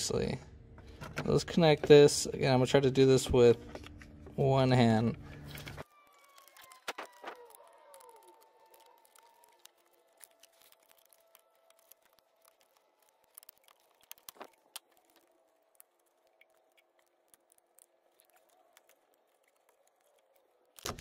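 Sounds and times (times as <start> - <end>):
faint clicks of plastic connectors: 5.0 - 21.0.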